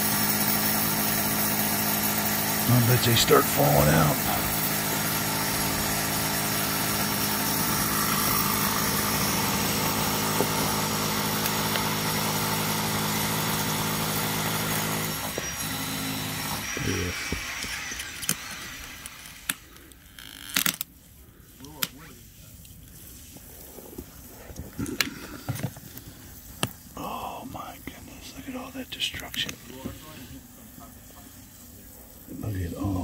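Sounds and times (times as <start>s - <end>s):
motor humming and hissing: 0.0s - 27.0s, 27.6s - 33.0s.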